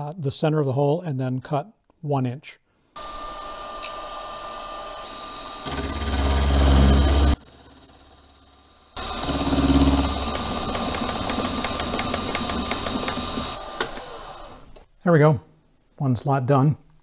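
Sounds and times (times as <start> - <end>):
milling machine cutting metal: 3.0 - 7.4, 8.4 - 14.6.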